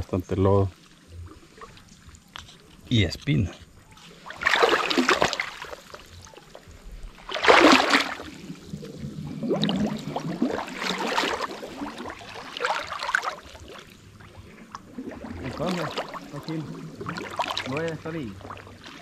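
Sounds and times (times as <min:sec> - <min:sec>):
footsteps sloshing through mud: 0:03.7 - 0:09.0, 0:09.7 - 0:19.0.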